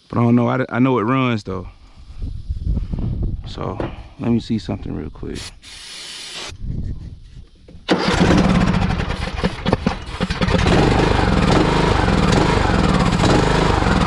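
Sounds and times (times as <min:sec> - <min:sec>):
riding mower engine running: 0:07.8 - 0:14.0.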